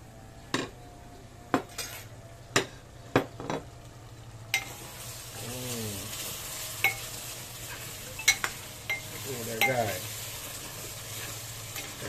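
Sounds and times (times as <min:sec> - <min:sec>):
chicken sizzling while stirred: 0:04.4 - 0:12.0.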